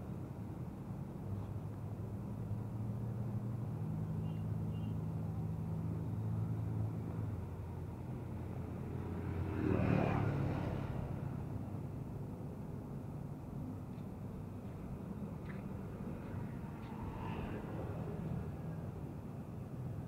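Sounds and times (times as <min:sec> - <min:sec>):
vehicle passing close: 0:08.2 - 0:11.6, 0:15.4 - 0:19.1.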